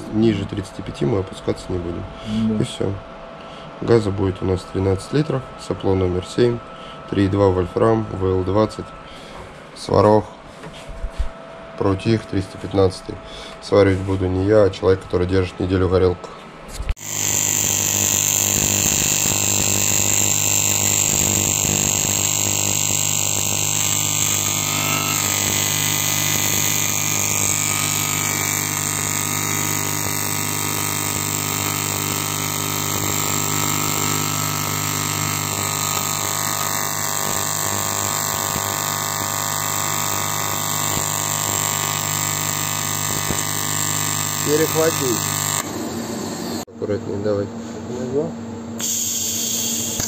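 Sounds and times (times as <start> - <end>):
welding arc buzzing: 16.9 - 46.7, 48.8 - 50.0
welding hiss: 17.0 - 46.6, 48.8 - 50.0.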